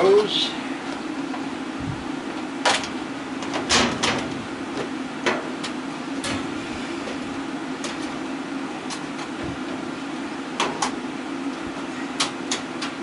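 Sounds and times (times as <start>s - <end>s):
fan hum: 0.0s - 13.0s.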